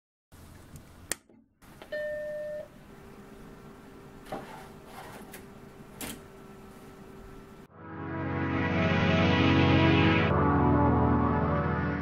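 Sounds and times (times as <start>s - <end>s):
computer low hum: 0.4s - 8.4s.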